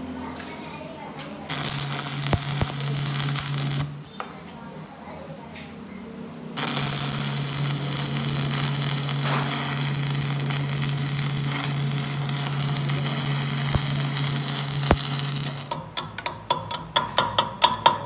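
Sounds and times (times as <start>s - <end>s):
low electrical hum: 0.0s - 15.8s
welding arc crackling: 1.5s - 4.0s, 6.6s - 15.8s.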